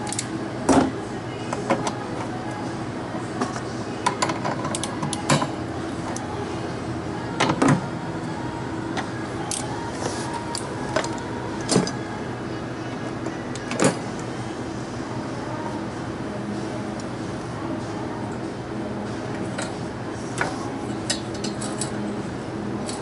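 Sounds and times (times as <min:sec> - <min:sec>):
machine hum: 0:00.0 - 0:23.0
metal tools clinking: 0:20.9 - 0:22.0.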